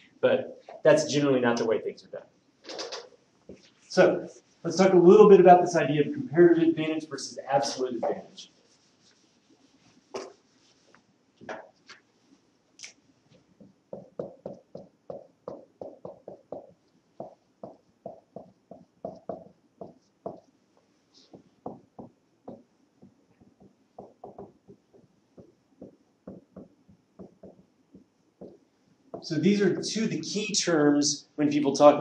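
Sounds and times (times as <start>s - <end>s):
marker writing on whiteboard: 7.6s - 12.1s, 13.3s - 29.3s.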